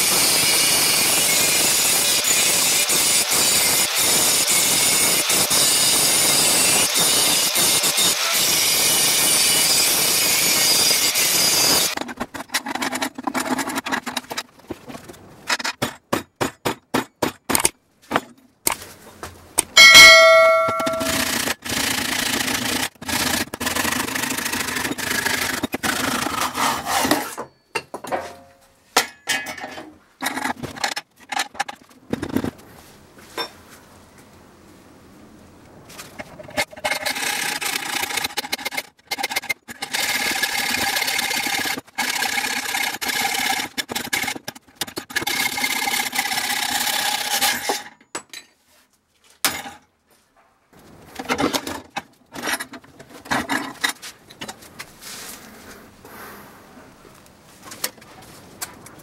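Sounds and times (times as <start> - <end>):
saw cutting wood: 0.0 - 12.1, 20.3 - 27.2, 36.8 - 44.4
hacksaw cutting metal: 0.0 - 14.2, 19.8 - 27.4, 36.6 - 47.9
metal vise clanking: 19.8 - 21.3.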